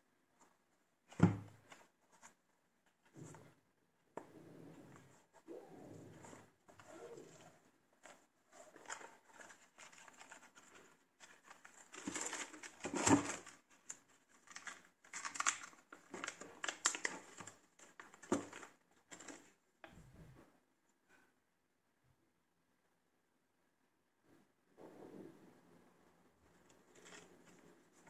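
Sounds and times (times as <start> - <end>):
tissue paper crinkling: 6.8 - 19.4.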